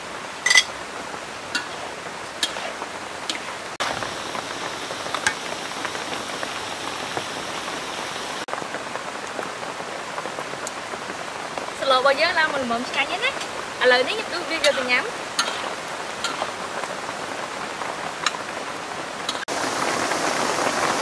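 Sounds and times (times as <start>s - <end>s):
food sizzling in a wok: 0.0s - 8.5s, 11.0s - 21.0s
metal ladle clinking on wok: 0.4s - 0.7s, 1.6s - 1.8s, 14.7s - 16.5s.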